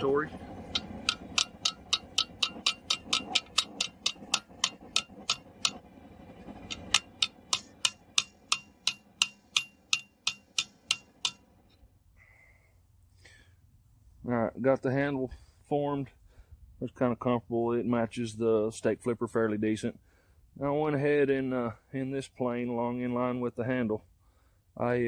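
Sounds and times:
hammer ringing on hot steel: 0.0s - 5.9s, 6.6s - 11.7s.

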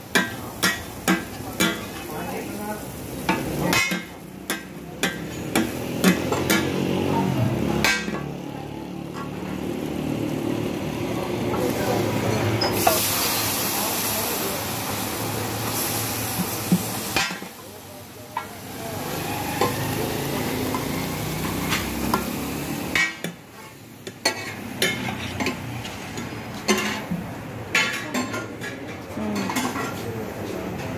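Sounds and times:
food sizzling on a griddle: 0.0s - 27.3s
utensils and dishes clinking: 3.2s - 6.8s, 11.5s - 13.1s, 19.4s - 30.9s.

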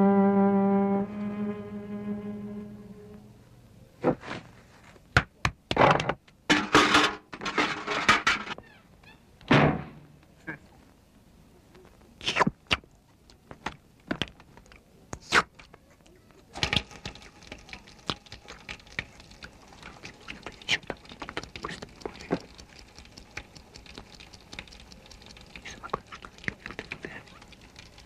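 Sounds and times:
small clicks and crackles: 11.6s - 28.0s.

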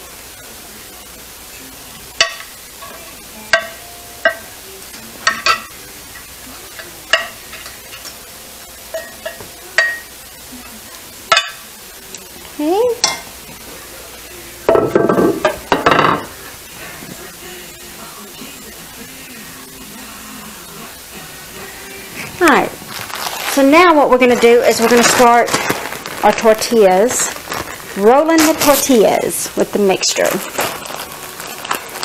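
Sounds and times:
metal spoon clinking on pan: 2.2s - 4.5s, 6.8s - 8.2s, 8.9s - 10.1s, 11.3s - 11.6s, 13.0s - 13.3s.

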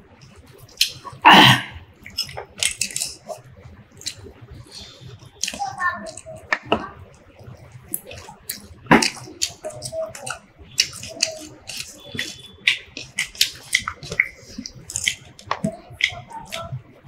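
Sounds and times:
food squelching by hand: 0.0s - 17.0s
wet chewing and lip smacking: 0.1s - 1.2s, 1.9s - 17.0s.

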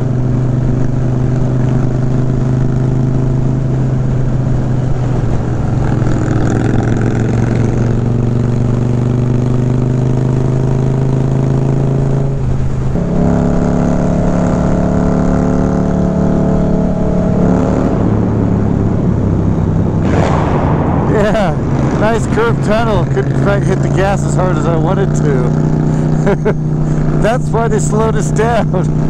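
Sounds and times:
motorcycle engine running: 0.0s - 29.0s
wind noise: 16.9s - 24.9s.

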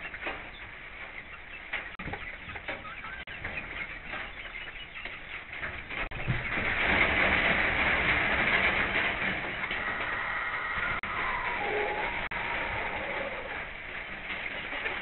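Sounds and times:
hens clucking softly: 0.0s - 6.8s, 9.5s - 15.0s
rain on a roof: 5.5s - 15.0s.

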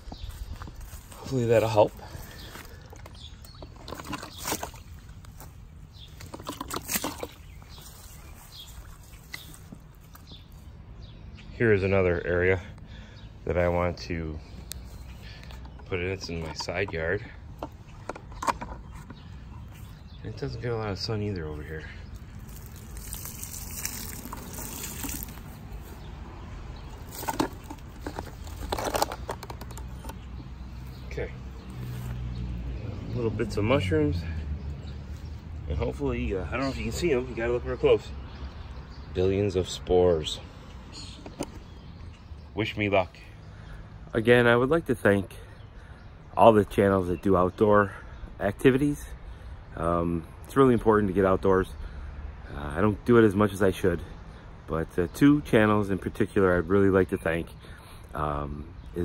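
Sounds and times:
footsteps on mulch: 0.0s - 10.8s, 21.4s - 30.0s, 31.6s - 32.5s
water splashing on soil: 6.1s - 9.7s, 22.2s - 26.0s
liquid pouring from a bucket: 6.2s - 7.5s, 22.4s - 25.6s.

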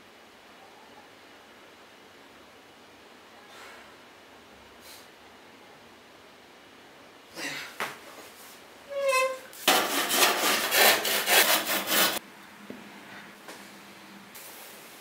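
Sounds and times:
handsaw cutting wood: 9.6s - 12.2s.

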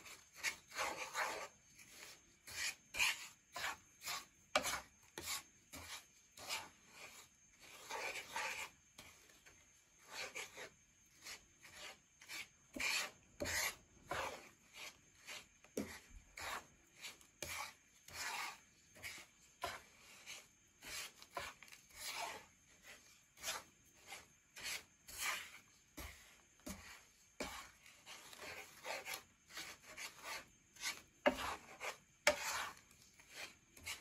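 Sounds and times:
spatula scraping sugar in a pan: 0.0s - 34.0s.

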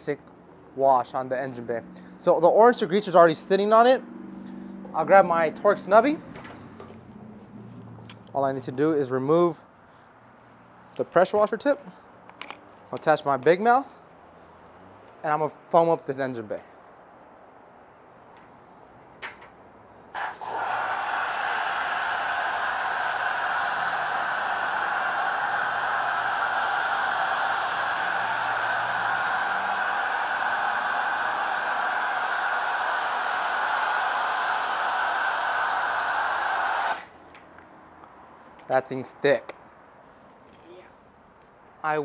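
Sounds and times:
pressure washer spraying foam: 20.2s - 37.1s.

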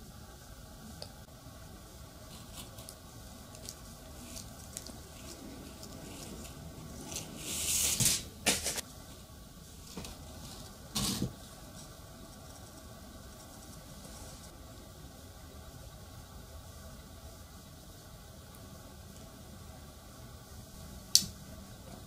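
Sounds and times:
scraping rustle on paper: 3.6s - 8.8s.

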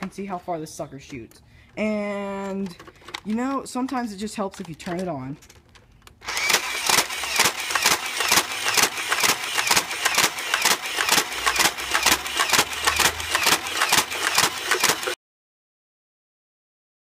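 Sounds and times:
dart blaster mechanism clacking: 6.2s - 15.2s
dart blaster motor running: 6.2s - 15.2s.

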